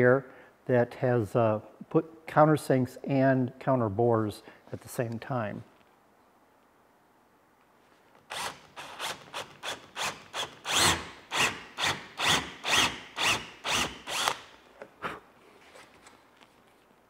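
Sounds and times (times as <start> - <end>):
cordless drill boring into wood: 8.3 - 14.6.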